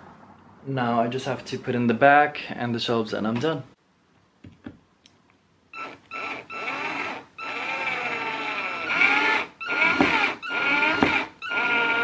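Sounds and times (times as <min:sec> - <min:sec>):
cordless drill motor whining: 0:05.8 - 0:12.0.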